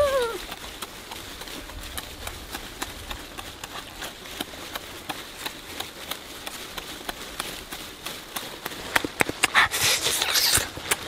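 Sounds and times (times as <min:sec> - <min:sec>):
chewing and lip smacking: 0:08.4 - 0:11.0.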